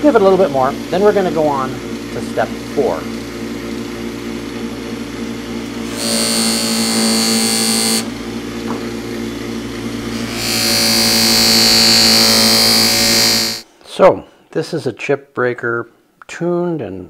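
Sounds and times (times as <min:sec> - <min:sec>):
buffing wheel motor hum: 0:00.0 - 0:13.6.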